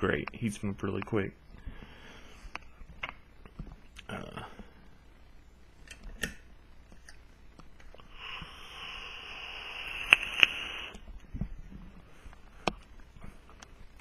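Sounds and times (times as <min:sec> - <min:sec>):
sharp clicks: 0:09.9 - 0:11.0.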